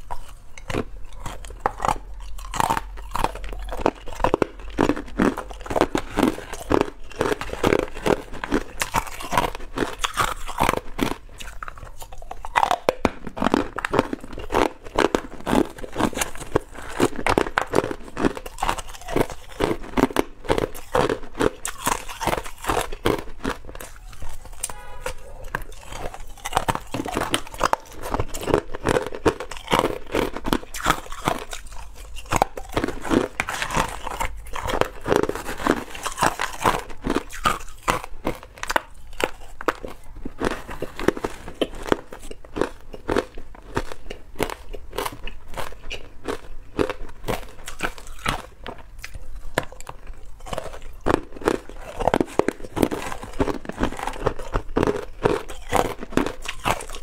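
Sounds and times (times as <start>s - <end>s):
ice cubes crunching while chewed: 0.0s - 57.0s.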